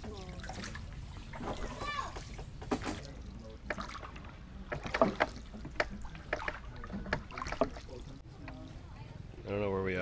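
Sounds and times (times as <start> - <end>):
hollow knocks on boat planking: 4.7 - 7.8.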